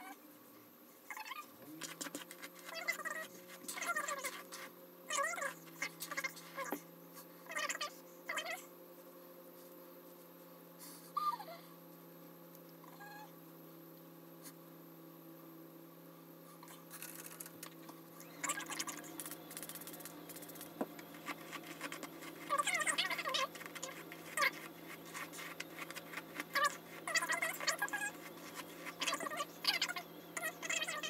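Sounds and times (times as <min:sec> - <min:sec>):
steady low hum: 0:00.0 - 0:31.0
hair being brushed: 0:19.2 - 0:29.3.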